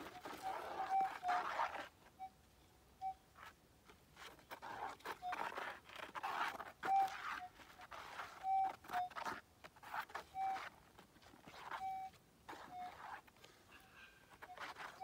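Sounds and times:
metal detector beeps: 0.2 - 1.5, 3.0 - 3.2, 6.8 - 7.6, 8.3 - 9.2, 10.3 - 10.7, 11.7 - 13.0.

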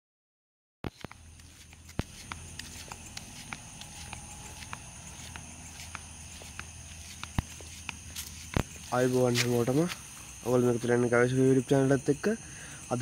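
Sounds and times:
footsteps walking: 0.9 - 10.5
night insects droning: 0.9 - 13.0.

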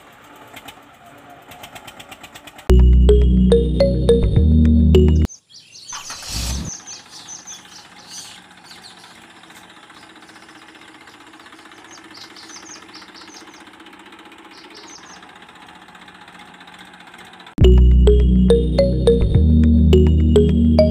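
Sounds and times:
small birds chirping: 5.2 - 15.4.

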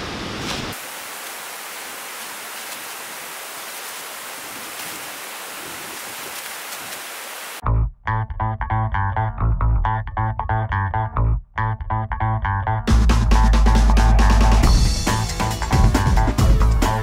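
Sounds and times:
outdoor rushing hiss: 0.0 - 7.6
guitar and bass music: 7.6 - 17.0.

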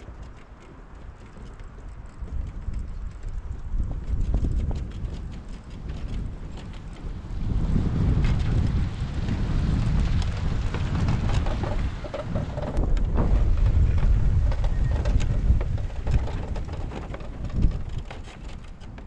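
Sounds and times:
wind buffeting microphone: 0.0 - 19.0
clicks and rattles: 10.0 - 19.0.

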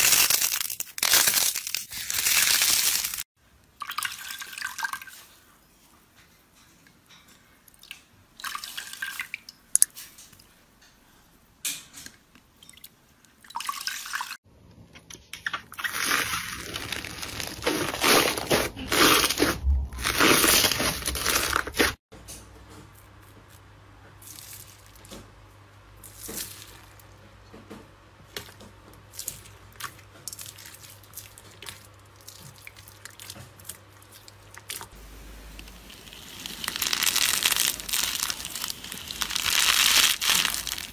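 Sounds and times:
slime crackling: 15.8 - 22.0, 35.6 - 40.9.

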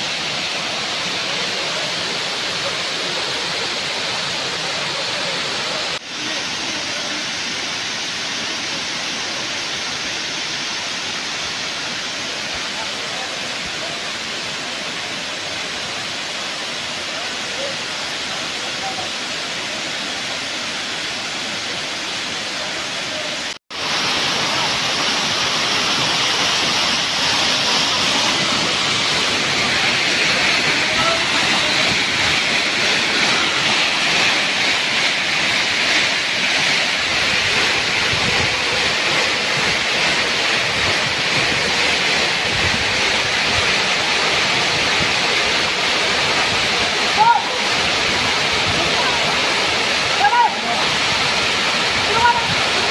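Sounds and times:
waterfall rushing: 0.0 - 52.9.

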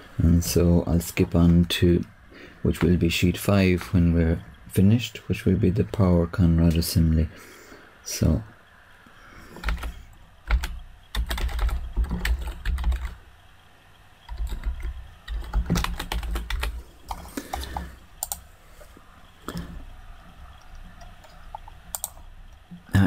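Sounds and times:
computer keyboard typing: 9.5 - 13.2, 14.3 - 18.5, 20.5 - 22.8.

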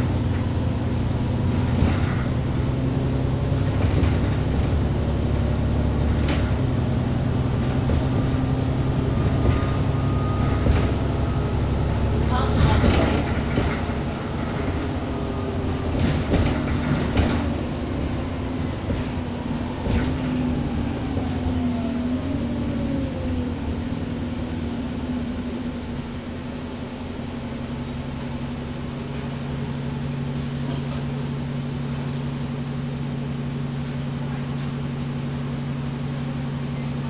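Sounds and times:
transmission whine: 0.0 - 24.2
bus engine running: 0.0 - 37.0
knocks and rattles: 12.5 - 15.1, 15.8 - 17.7.

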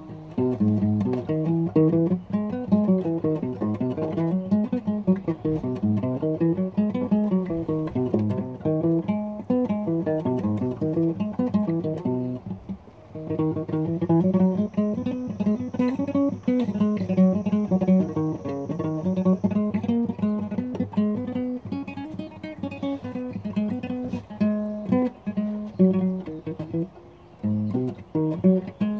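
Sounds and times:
acoustic guitar picking: 0.0 - 28.9.

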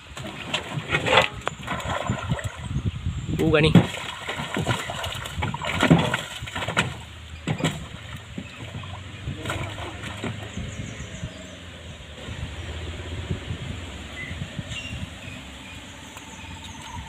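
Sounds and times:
fish thrashing and splashing: 0.0 - 3.0, 3.6 - 11.5
water sloshing: 0.0 - 17.0.

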